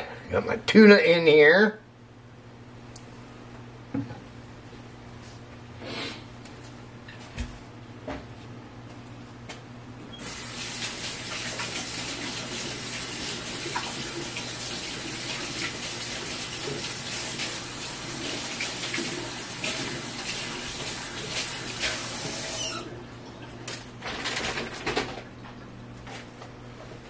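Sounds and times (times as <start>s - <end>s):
tap water running into sink: 10.2s - 22.8s.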